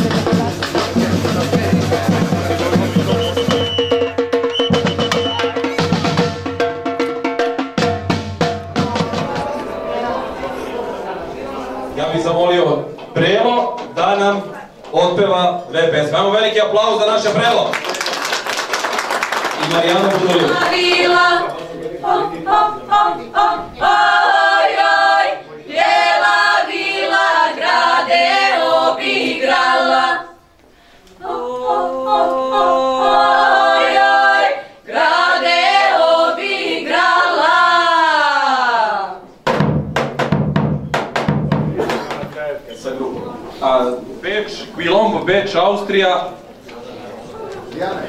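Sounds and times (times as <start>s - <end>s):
large drum strokes: 0.0s - 14.1s, 39.4s - 42.2s
women singing in harmony: 8.7s - 13.0s, 20.4s - 30.4s, 31.1s - 39.3s.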